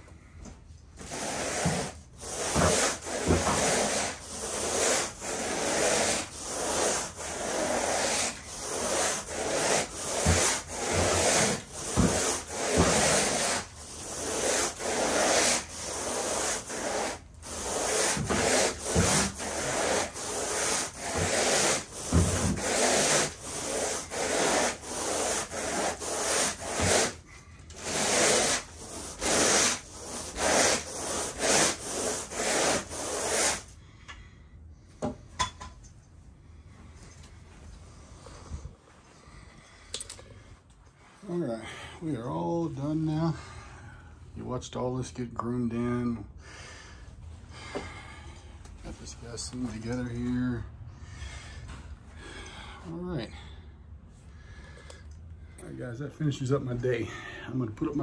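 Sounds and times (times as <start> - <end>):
carpet rake dragged through pile: 1.0 - 27.2, 27.8 - 33.6.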